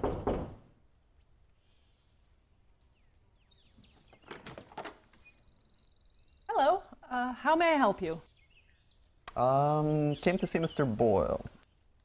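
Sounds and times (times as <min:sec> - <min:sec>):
knocking on wooden door: 0:00.0 - 0:00.6
faint birds chirping: 0:00.0 - 0:12.0.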